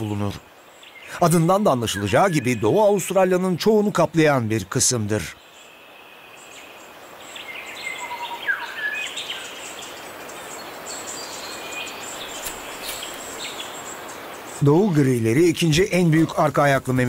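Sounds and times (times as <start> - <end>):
birds calling: 0.0 - 17.0
steady hiss: 0.0 - 17.0
high chirping: 7.4 - 16.8.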